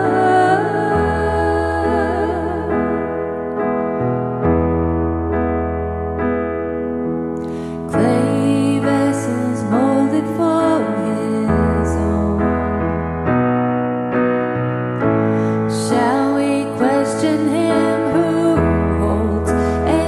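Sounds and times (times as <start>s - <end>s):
women singing: 0.0s - 3.3s, 8.0s - 12.8s, 15.7s - 20.0s
soft piano chords: 0.0s - 20.0s.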